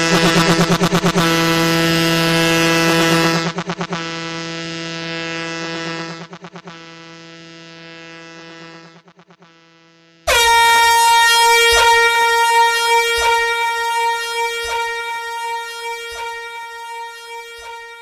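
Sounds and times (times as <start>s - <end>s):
high-pitched air horn blast: 0.0s - 3.5s, 10.3s - 18.0s
low stuttering horn tone: 0.0s - 8.2s, 8.9s - 18.0s.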